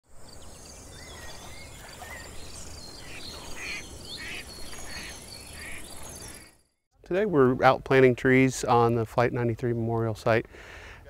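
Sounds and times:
birds chirping and singing: 0:00.2 - 0:06.6.

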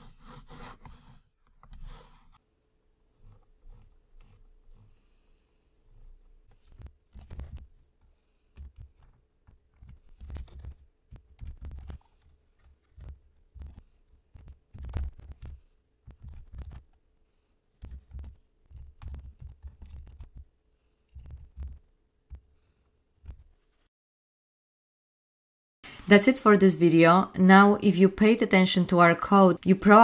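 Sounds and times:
typing on computer keyboard: 0:17.8 - 0:20.5.

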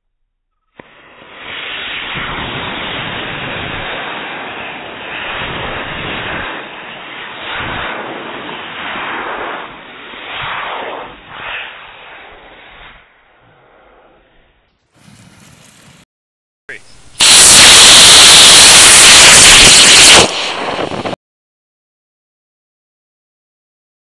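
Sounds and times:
rocket motors hissing: 0:17.0 - 0:21.2.

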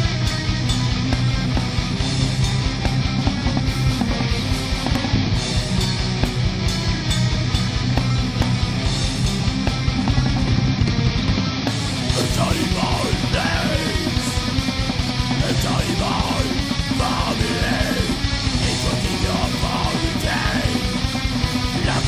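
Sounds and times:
bass guitar: 0:00.0 - 0:22.0
distorted electric guitars: 0:00.0 - 0:22.0
fast driving drums: 0:00.0 - 0:22.0
high sliding guitar notes: 0:11.8 - 0:22.0.

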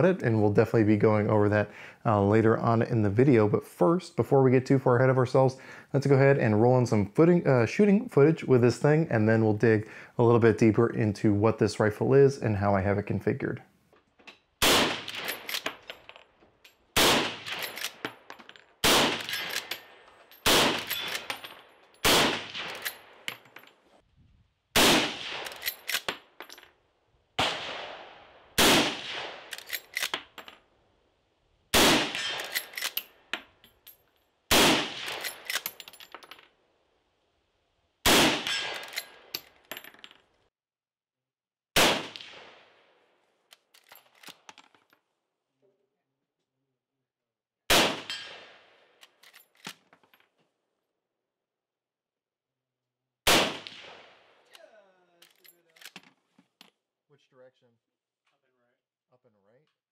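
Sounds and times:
rifle shots: 0:14.6 - 0:15.8, 0:17.0 - 0:18.1, 0:18.8 - 0:23.3, 0:24.8 - 0:26.3, 0:27.4 - 0:30.3, 0:31.7 - 0:33.0, 0:34.5 - 0:35.7, 0:38.0 - 0:39.3, 0:41.8 - 0:42.7, 0:47.7 - 0:48.8, 0:53.3 - 0:54.5
rifle lever metallic clacks: 0:17.5 - 0:18.2, 0:25.4 - 0:26.6, 0:29.5 - 0:30.4, 0:32.2 - 0:33.1, 0:35.0 - 0:36.3, 0:38.4 - 0:39.6, 0:55.2 - 0:56.7.

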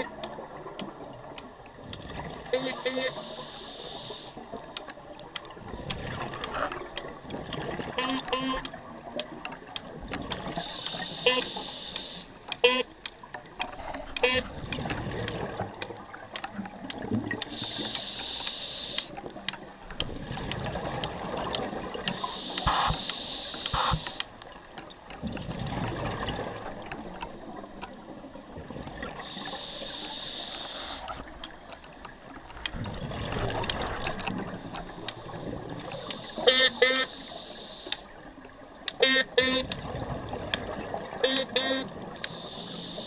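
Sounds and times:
small clicks: 0:00.0 - 0:25.5, 0:33.6 - 0:38.1, 0:40.5 - 0:43.0
short honk-like pulses: 0:02.5 - 0:03.4, 0:08.0 - 0:08.6, 0:10.7 - 0:12.9, 0:14.2 - 0:14.5, 0:22.2 - 0:24.1, 0:36.3 - 0:37.2, 0:39.0 - 0:39.7, 0:41.2 - 0:41.9
hissing inhale through regulator: 0:02.5 - 0:04.4, 0:10.5 - 0:12.3, 0:17.5 - 0:19.2, 0:22.1 - 0:24.3, 0:29.2 - 0:31.2, 0:34.5 - 0:38.1, 0:42.2 - 0:43.0
rush of exhaled bubbles: 0:25.3 - 0:26.8, 0:32.8 - 0:34.6.

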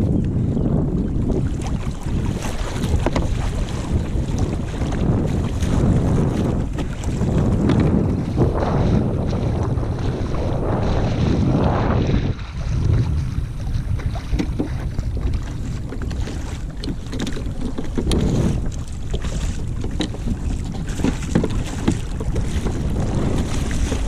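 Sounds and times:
wind buffeting microphone: 0:00.0 - 0:24.0
water splashing: 0:01.2 - 0:24.0
small knocks against hull: 0:02.3 - 0:08.1, 0:13.9 - 0:24.0.

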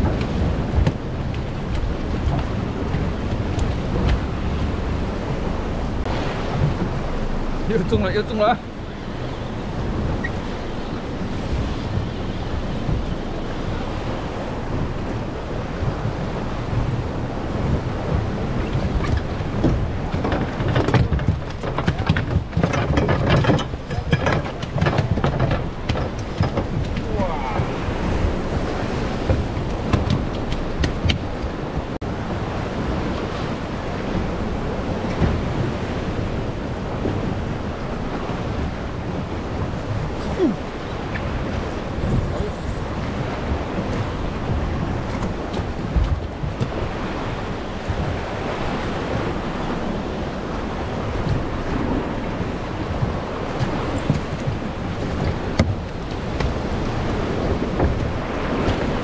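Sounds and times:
surf breaking on rocks: 0:00.0 - 0:59.0
wind buffeting microphone: 0:00.0 - 0:59.0
sharp clicks and knocks: 0:18.6 - 0:27.1, 0:29.2 - 0:31.9.

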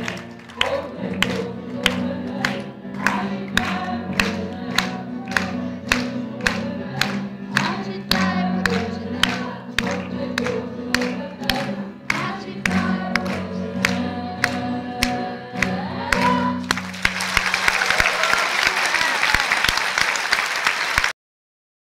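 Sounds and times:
piano and cello accompaniment: 0:00.0 - 0:18.0
sharp clap-like beat: 0:00.0 - 0:21.1
audience applauding: 0:00.0 - 0:21.2
woman singing: 0:00.5 - 0:16.7.

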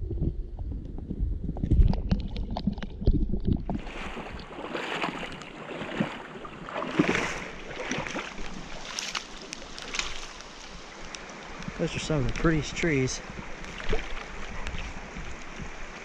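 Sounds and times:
muffled underwater rumbling and knocks: 0:00.0 - 0:06.1
shallow river water rushing and splashing: 0:03.0 - 0:16.0.

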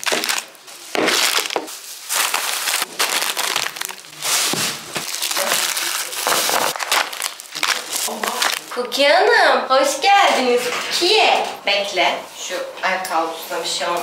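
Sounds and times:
plastic bags rustling: 0:00.0 - 0:08.9.

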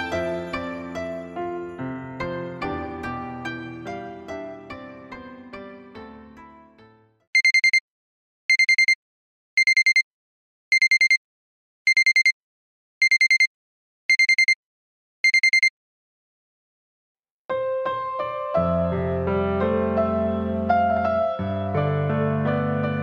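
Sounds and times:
smartphone timer alarm beeping: 0:07.4 - 0:07.8, 0:08.5 - 0:09.0, 0:09.6 - 0:10.0, 0:10.7 - 0:11.2, 0:11.9 - 0:12.4, 0:13.0 - 0:13.5, 0:14.1 - 0:14.6, 0:15.2 - 0:15.7.

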